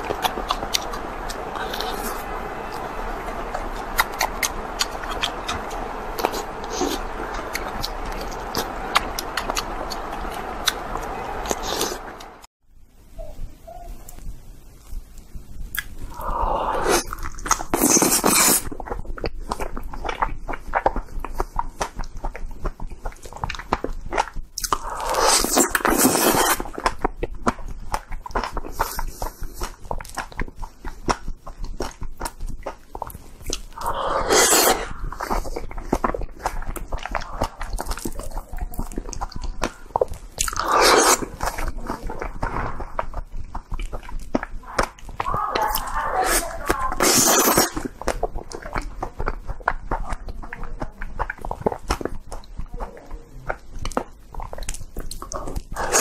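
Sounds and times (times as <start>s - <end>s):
wet chewing: 0.0s - 12.3s, 14.8s - 56.0s
crunching bites of fruit: 23.0s - 48.8s.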